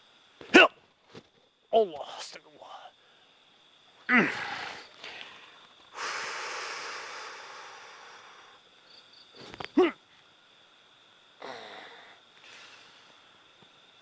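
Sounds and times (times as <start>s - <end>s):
faint high insect whine: 0.0s - 14.0s
man's short sharp cry: 0.5s - 0.7s
man sighing: 4.1s - 5.3s
man exhaling breathily: 4.1s - 8.6s.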